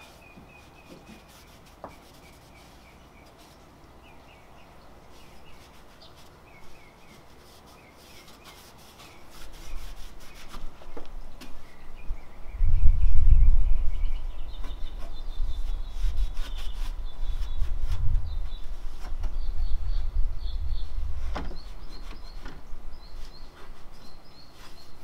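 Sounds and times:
cloth rag rubbing metal: 0:00.0 - 0:03.5, 0:05.5 - 0:10.8.

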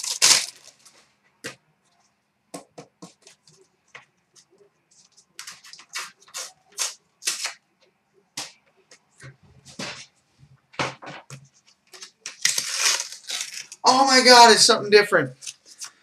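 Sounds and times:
card pack wrapper crinkling and tearing: 0:00.0 - 0:00.9, 0:05.4 - 0:07.6, 0:11.9 - 0:14.3
cards being handled: 0:04.4 - 0:07.6.

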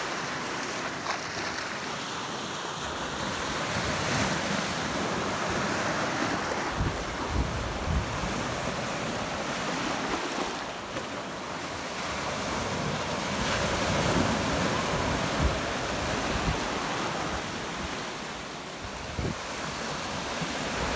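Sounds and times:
small waves breaking: 0:00.0 - 0:20.9
wind buffeting microphone: 0:06.4 - 0:08.9, 0:18.9 - 0:19.5.

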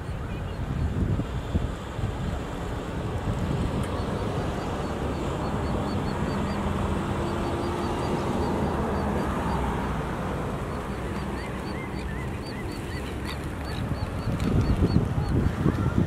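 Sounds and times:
wind: 0:00.0 - 0:16.0
distant bird calls: 0:03.6 - 0:15.4
high bird chirps: 0:03.9 - 0:09.7, 0:10.6 - 0:15.1.

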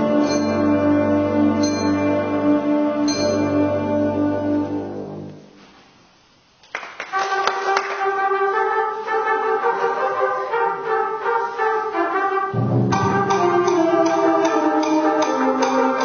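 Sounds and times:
sharp percussion hits: 0:00.0 - 0:02.4, 0:12.5 - 0:16.0
brass sustained notes: 0:00.0 - 0:05.6, 0:07.1 - 0:16.0
concert band playing: 0:12.5 - 0:16.0.

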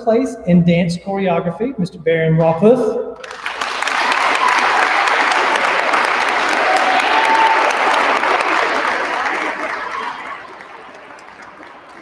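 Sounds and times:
audience clapping: 0:03.2 - 0:12.0.

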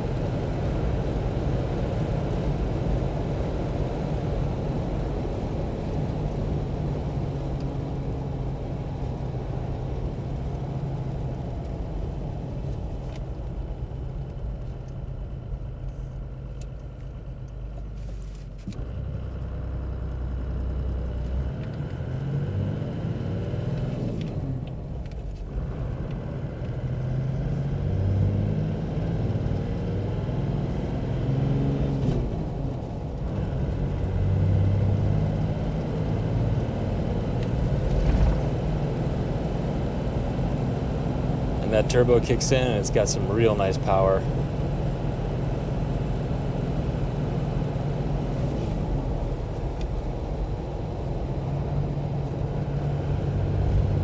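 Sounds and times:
diesel engine humming: 0:00.0 - 0:54.0.

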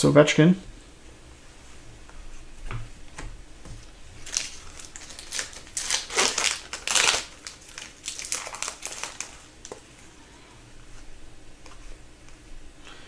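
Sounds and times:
foil wrapper crinkling: 0:04.2 - 0:09.9.

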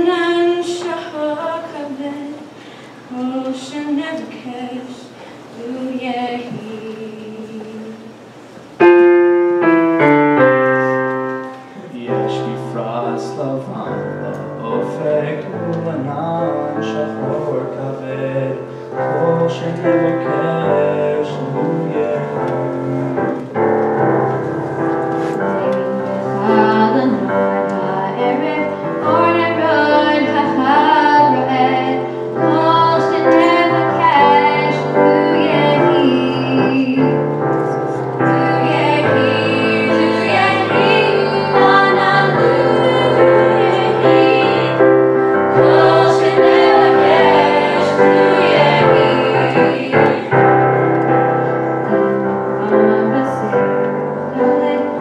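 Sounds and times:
slow piano music: 0:08.8 - 0:55.0
person singing: 0:25.6 - 0:50.6.

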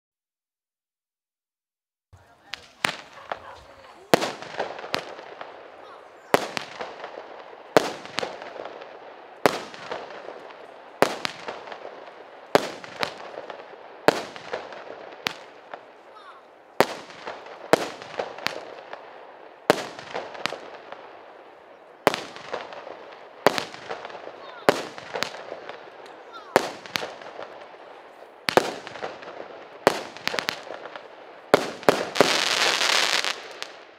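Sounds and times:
firework launch bangs: 0:02.4 - 0:21.1.

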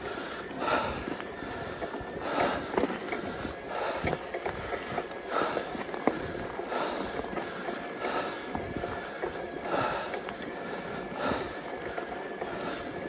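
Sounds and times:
person breathing hard: 0:00.0 - 0:13.0.

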